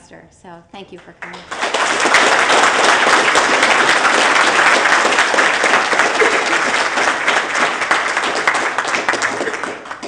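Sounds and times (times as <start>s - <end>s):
audience applauding: 1.3s - 10.0s.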